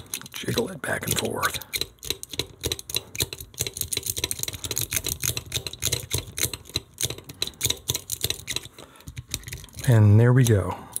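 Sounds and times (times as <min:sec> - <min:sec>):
lock pick clicking and rattling: 0:00.0 - 0:11.0.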